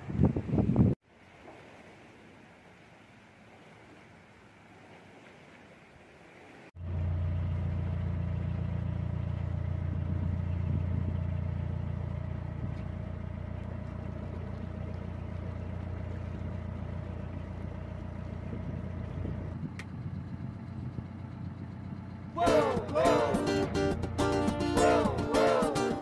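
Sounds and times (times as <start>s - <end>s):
diesel engine running: 6.8s - 26.0s
faint higher engine tone: 6.8s - 26.0s.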